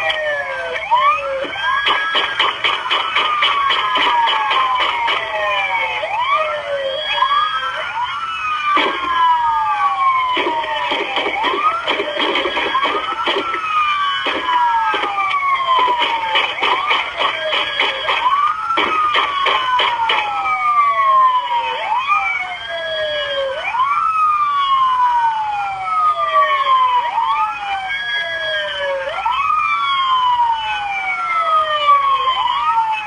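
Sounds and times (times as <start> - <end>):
police sirens wailing: 0.0 - 33.0
sharp knocks: 1.8 - 5.2.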